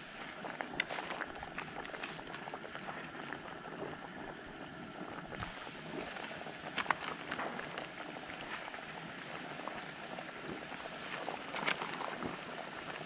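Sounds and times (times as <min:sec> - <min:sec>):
fish sizzling in hot oil: 0:00.0 - 0:13.0
oil spitting and popping: 0:00.2 - 0:04.0, 0:05.2 - 0:09.0, 0:10.2 - 0:13.0.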